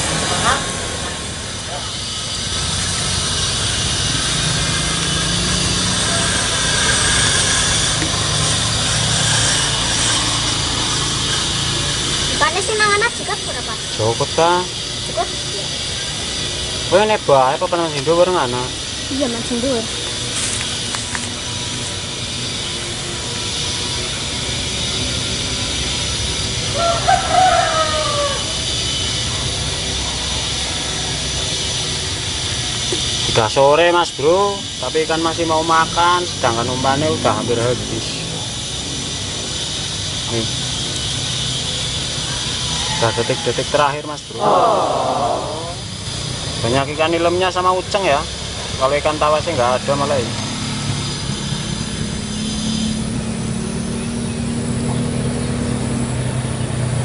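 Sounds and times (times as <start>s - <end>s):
rooster crowing: 6.0s - 6.9s, 26.7s - 28.7s, 42.4s - 43.8s, 44.4s - 45.8s.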